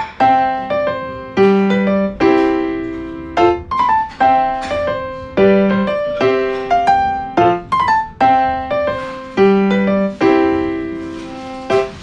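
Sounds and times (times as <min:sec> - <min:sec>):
solo piano: 0:00.0 - 0:12.0.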